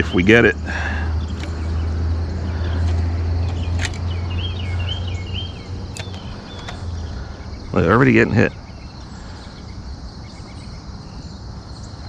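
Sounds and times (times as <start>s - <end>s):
bird chirping: 0.0s - 12.0s
low outdoor hum: 0.0s - 12.0s
light clicks: 1.2s - 1.8s, 2.6s - 4.4s, 5.8s - 7.0s.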